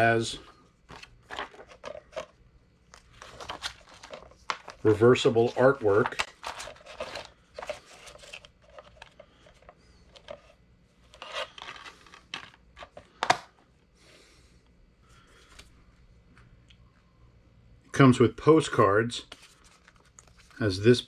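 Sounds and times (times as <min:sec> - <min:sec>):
paper sleeve rustling: 0:02.9 - 0:09.1.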